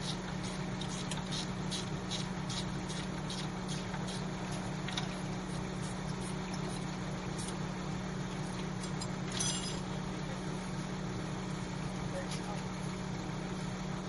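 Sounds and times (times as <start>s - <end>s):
engine idling: 0.0s - 14.0s
metallic clink: 8.9s - 9.9s.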